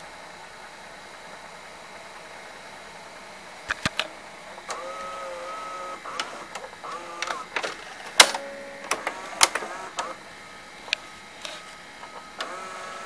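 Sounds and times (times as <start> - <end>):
tape mechanism clicks: 3.7 - 10.2, 10.8 - 13.0
motor whine: 4.6 - 13.0.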